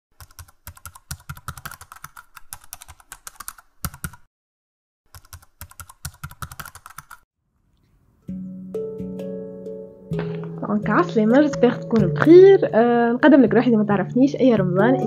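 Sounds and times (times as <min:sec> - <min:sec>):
rapid keyboard typing: 0:00.2 - 0:04.3, 0:05.1 - 0:07.2.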